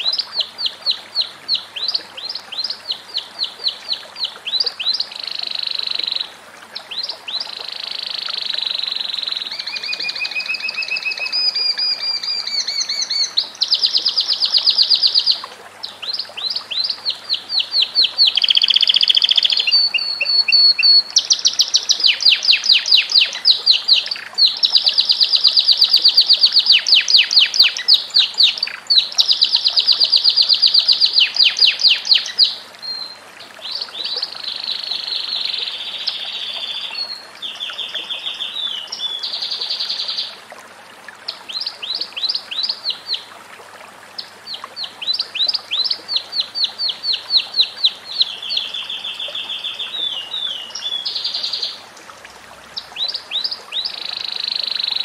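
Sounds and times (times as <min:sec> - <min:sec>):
canary trilling song: 0:07.7 - 0:15.4, 0:16.8 - 0:25.8, 0:53.0 - 0:55.0.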